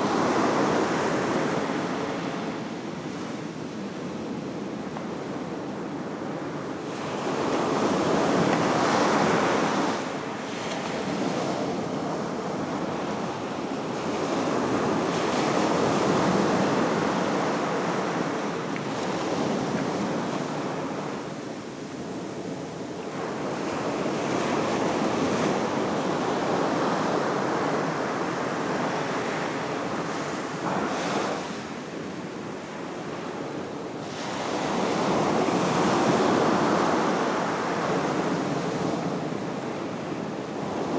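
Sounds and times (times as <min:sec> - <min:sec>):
ocean surf breaking on beach: 0:00.0 - 0:40.9.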